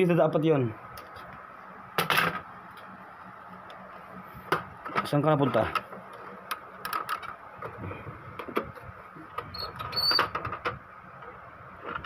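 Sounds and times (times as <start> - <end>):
high squeaks: 9.5 - 10.3.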